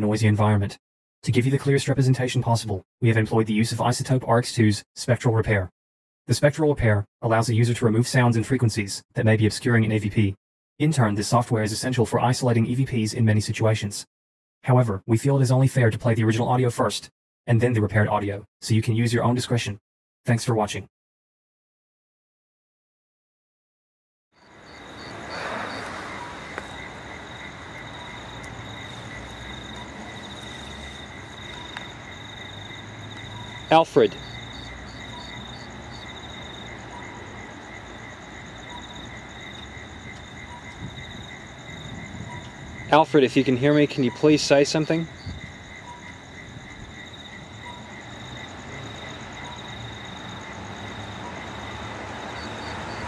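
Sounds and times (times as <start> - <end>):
continuous high insect trill: 24.4 - 53.0
crickets chirring: 24.4 - 53.0
low traffic rumble: 24.4 - 53.0.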